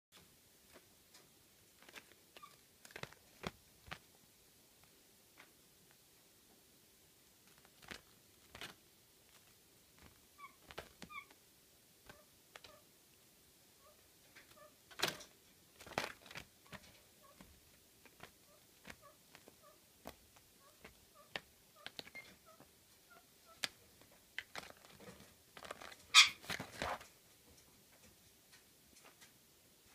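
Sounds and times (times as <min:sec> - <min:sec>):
paper rustling: 0:01.8 - 0:04.0, 0:07.5 - 0:11.2, 0:15.0 - 0:20.2, 0:24.4 - 0:27.1
woodpecker taps and scratches: 0:15.8 - 0:22.7.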